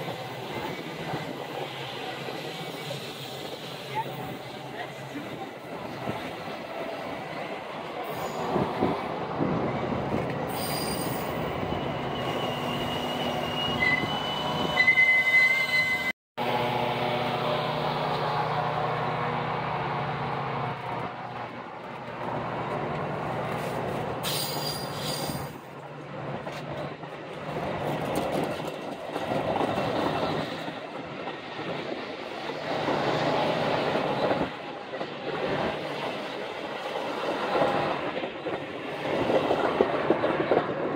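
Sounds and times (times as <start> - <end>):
high wheel squeal: 10.5 - 16.1, 24.2 - 25.6
train wheels rumbling on rails: 15.9 - 40.9.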